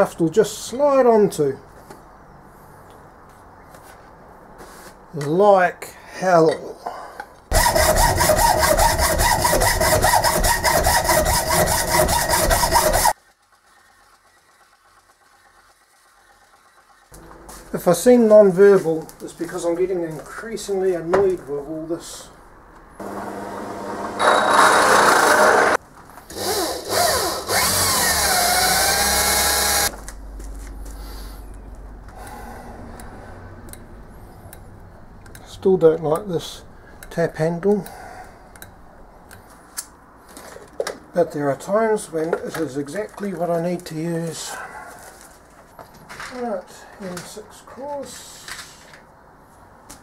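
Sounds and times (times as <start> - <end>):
hacksaw cutting metal: 7.5 - 13.2, 23.9 - 29.9
power drill boring into metal: 7.5 - 13.2, 23.0 - 29.9.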